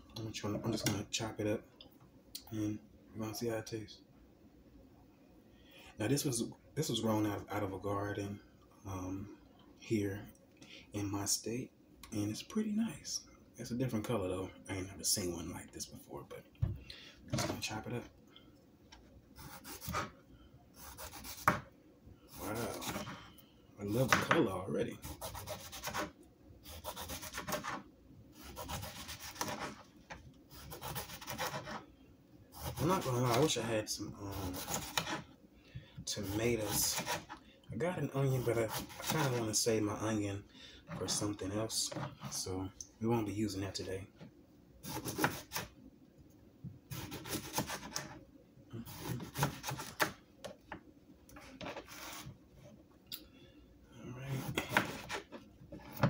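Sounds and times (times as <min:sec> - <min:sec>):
knife sawing through cucumber: 0:19.4 - 0:20.1, 0:20.8 - 0:21.6, 0:22.3 - 0:23.2, 0:25.0 - 0:26.1, 0:26.7 - 0:27.8, 0:28.4 - 0:29.8, 0:30.5 - 0:31.8, 0:32.6 - 0:33.5, 0:34.2 - 0:35.2, 0:36.1 - 0:37.4, 0:38.2 - 0:39.5, 0:44.8 - 0:45.7, 0:46.9 - 0:48.1, 0:48.8 - 0:50.1, 0:54.3 - 0:55.4.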